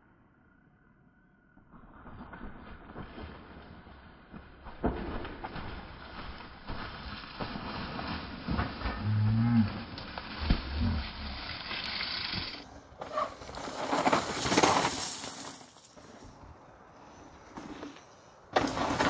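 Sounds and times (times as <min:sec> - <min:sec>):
bike tyres crunching on gravel: 0:02.9 - 0:19.0
low groaning tone: 0:08.8 - 0:11.6.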